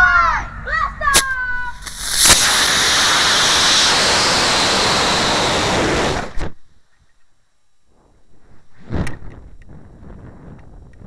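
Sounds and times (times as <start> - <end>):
rocket motor roaring: 1.2 - 6.6.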